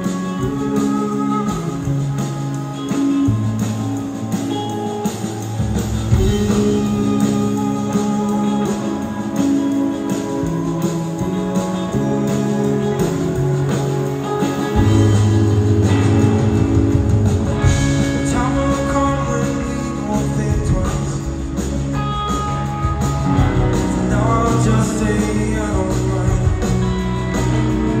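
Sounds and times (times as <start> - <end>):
bass notes: 0.0 - 28.0
electric guitar: 0.0 - 28.0
keyboards: 0.0 - 28.0.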